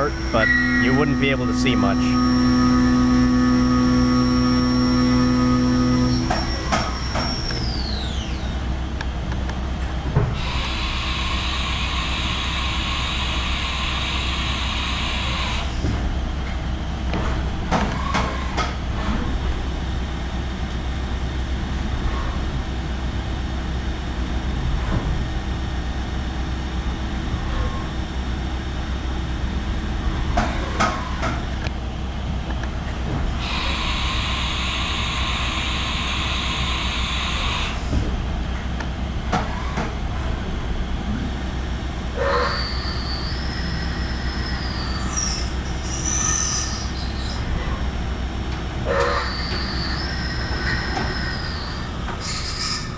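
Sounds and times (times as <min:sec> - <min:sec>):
spindle high hiss and whine: 0:00.0 - 0:06.9
spindle winding down: 0:00.0 - 0:08.0
low machine hum: 0:00.0 - 0:52.9.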